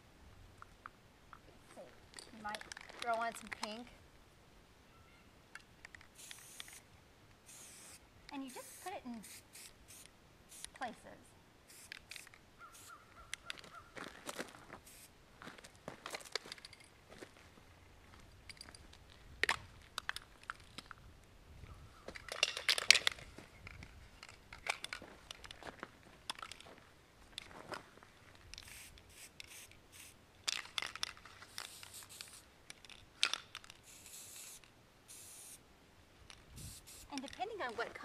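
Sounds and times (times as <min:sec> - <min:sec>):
spray paint can hissing: 0:06.1 - 0:06.8, 0:07.4 - 0:10.8, 0:11.7 - 0:13.0, 0:14.8 - 0:15.1, 0:28.6 - 0:32.5, 0:33.3 - 0:35.6, 0:36.6 - 0:37.2
footsteps on dry leaves and gravel: 0:13.5 - 0:18.3.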